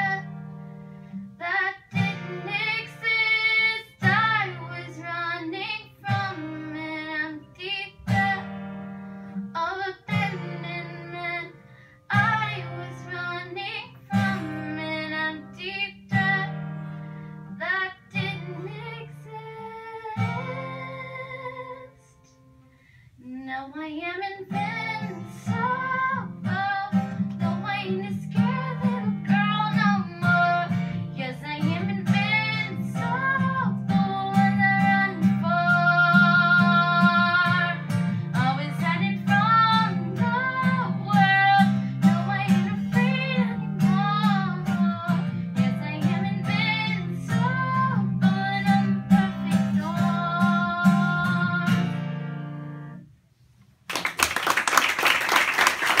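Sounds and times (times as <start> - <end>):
girl singing: 0.0 - 0.4, 1.3 - 8.7, 9.4 - 16.9, 17.5 - 22.3, 23.2 - 53.0
strummed acoustic guitar: 0.0 - 21.9, 24.4 - 53.0
audience applauding: 53.9 - 56.0.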